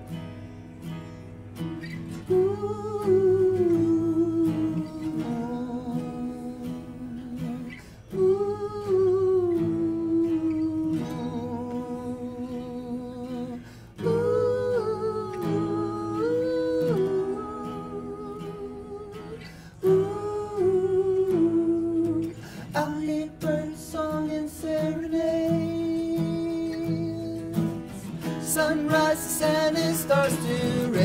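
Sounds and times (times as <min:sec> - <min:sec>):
strummed acoustic guitars: 0:00.0 - 0:31.0
men singing wordless melody: 0:02.3 - 0:31.0.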